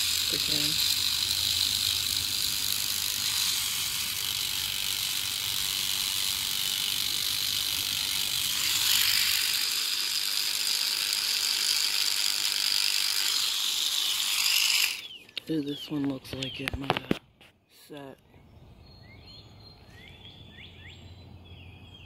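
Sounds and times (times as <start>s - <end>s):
electric toothbrush buzzing: 0.0s - 15.1s.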